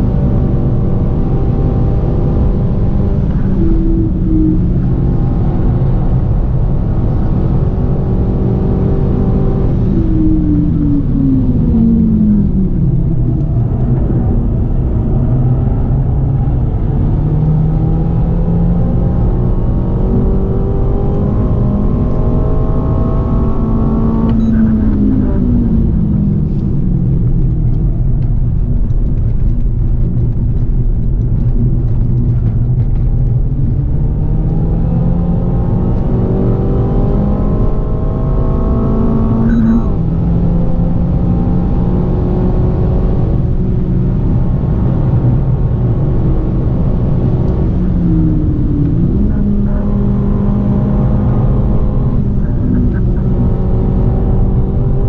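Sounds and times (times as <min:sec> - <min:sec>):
car engine revving: 0:00.0 - 0:55.0
road and tyre rumble: 0:00.0 - 0:55.0.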